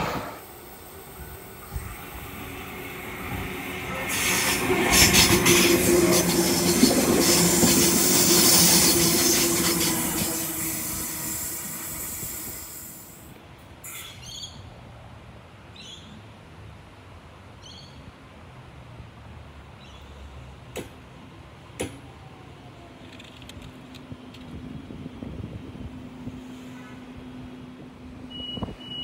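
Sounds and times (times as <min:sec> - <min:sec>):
train passing at speed: 0:00.0 - 0:13.9, 0:23.9 - 0:28.4.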